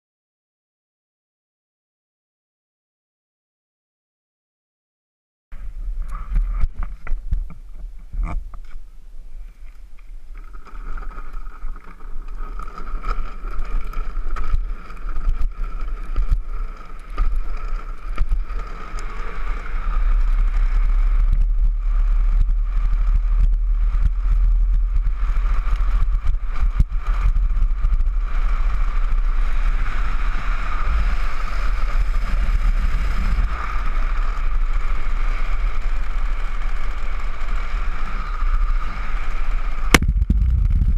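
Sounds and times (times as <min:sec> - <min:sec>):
small wheels rolling on asphalt: 0:05.6 - 0:40.9
steady whine: 0:31.7 - 0:40.9
wind buffeting microphone: 0:39.6 - 0:40.9.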